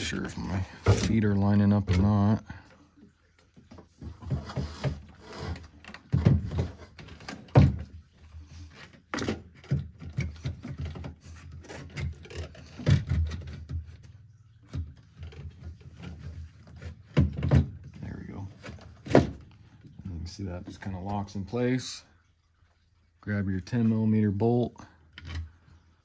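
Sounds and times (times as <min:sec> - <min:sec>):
hollow plastic knocks and bumps: 0:03.5 - 0:08.1, 0:08.8 - 0:20.0
plastic rubbing against bracket: 0:03.7 - 0:14.1.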